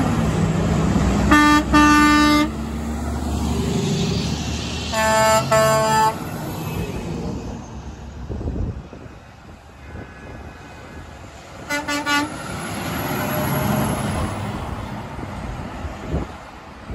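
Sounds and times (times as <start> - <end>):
traffic rumble: 0.0 - 16.9
higher-pitched air horn blasts: 1.3 - 2.6, 4.9 - 6.2, 11.6 - 12.4
truck air horn blasts: 1.3 - 2.7, 4.9 - 6.2, 11.6 - 12.4.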